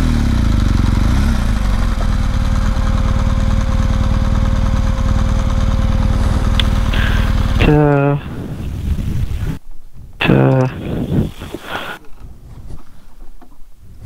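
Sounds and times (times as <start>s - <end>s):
motorcycle engine idling: 0.0s - 9.6s.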